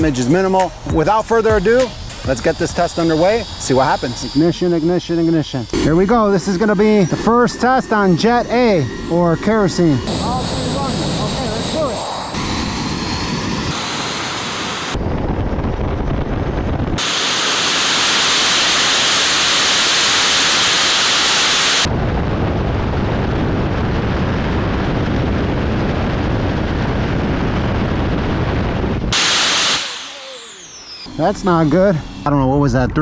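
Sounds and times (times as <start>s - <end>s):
bright hiss: 0.0s - 15.0s, 17.0s - 21.9s, 29.2s - 32.4s
jet engines whining and roaring: 0.0s - 33.0s.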